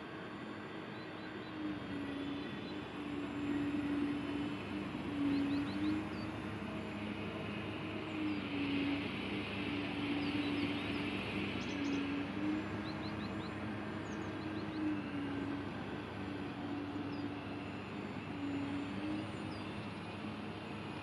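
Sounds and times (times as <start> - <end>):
birds chirping: 0.7 - 20.9.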